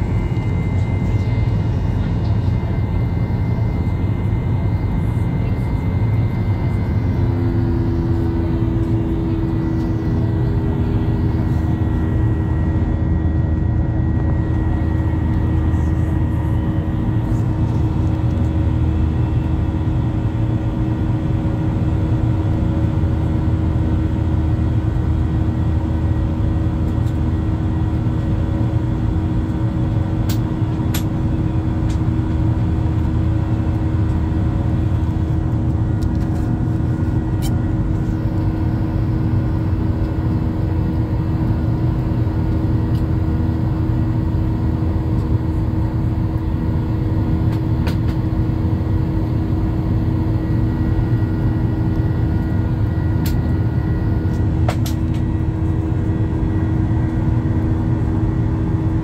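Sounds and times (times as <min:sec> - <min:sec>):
jet engine rumble and rushing air: 0:00.0 - 0:59.0
steady engine hums: 0:00.0 - 0:59.0.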